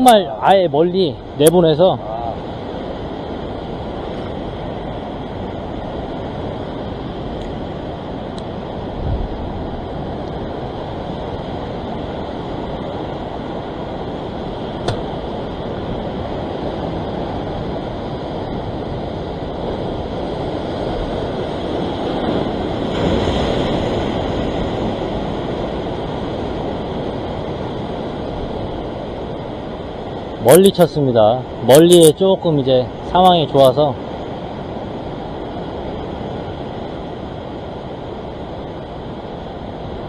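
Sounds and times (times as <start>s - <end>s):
wind on microphone: 0.0s - 30.5s
surf washing over rocks: 0.0s - 40.0s.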